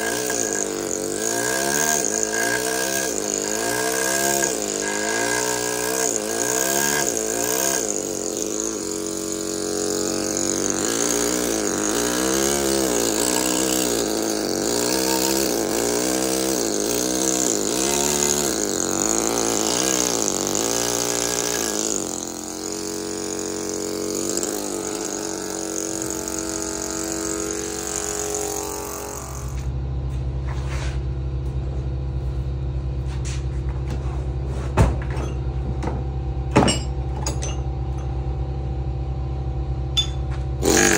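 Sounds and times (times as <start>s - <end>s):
pneumatic hammer with air hiss: 0.0s - 29.7s, 40.0s - 40.9s
low machine hum: 0.0s - 40.9s.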